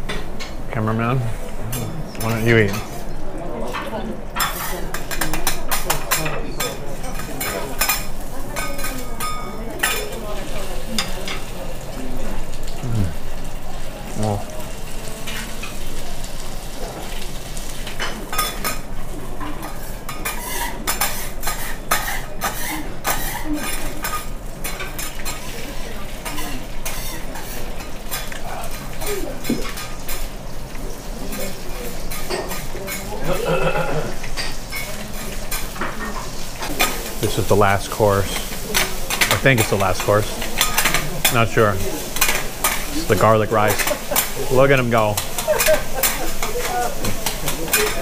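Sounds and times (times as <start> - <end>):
food sizzling: 0.0 - 48.0
metal spatulas scraping griddle: 19.6 - 25.4, 26.2 - 28.3.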